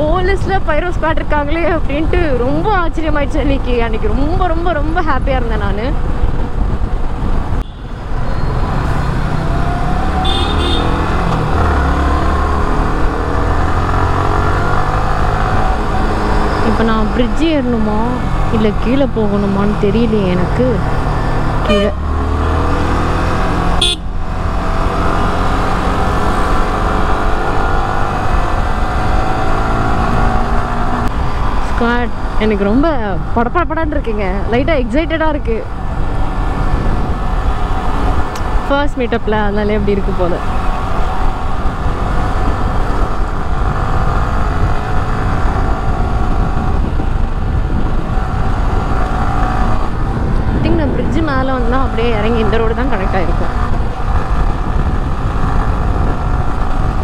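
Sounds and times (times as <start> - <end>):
motorcycle engine cruising: 0.0 - 57.0
wind rush on microphone: 0.0 - 57.0
short horn toot: 10.2 - 11.0.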